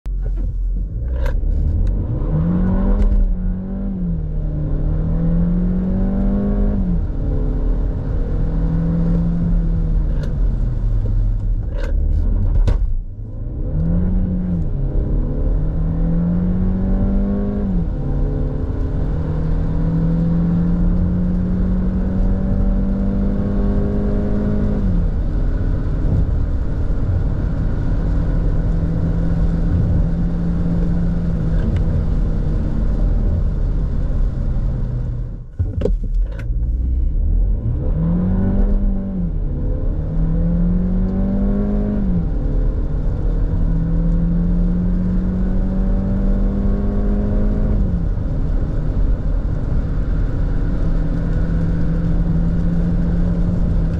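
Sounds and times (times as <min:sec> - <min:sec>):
car engine revving: 0:00.1 - 0:53.9.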